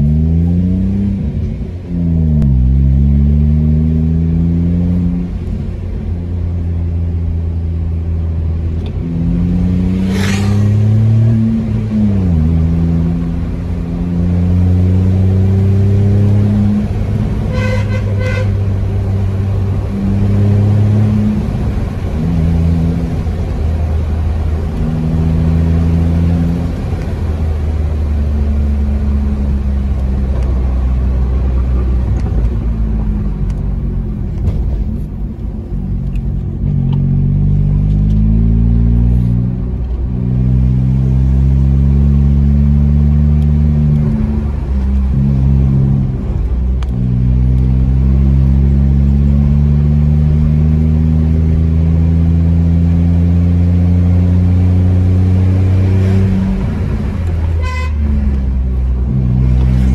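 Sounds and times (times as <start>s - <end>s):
car engine accelerating: 0.0s - 59.9s
car horn toot: 17.4s - 18.7s, 57.5s - 58.3s.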